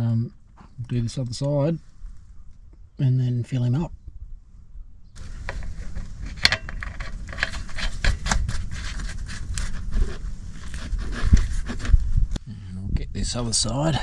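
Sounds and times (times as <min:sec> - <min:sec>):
drain plug scraping and clicking: 0:05.2 - 0:09.9.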